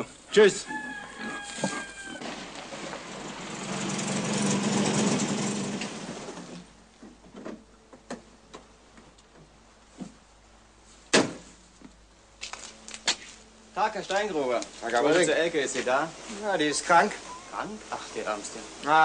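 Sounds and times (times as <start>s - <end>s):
car engine driving up: 2.7s - 6.8s.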